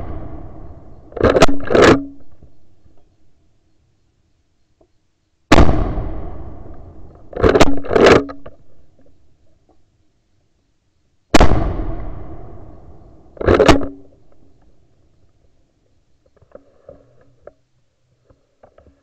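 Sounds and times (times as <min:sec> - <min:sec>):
rifle shots echoing: 0:00.0 - 0:02.2, 0:05.5 - 0:08.3, 0:11.3 - 0:14.2.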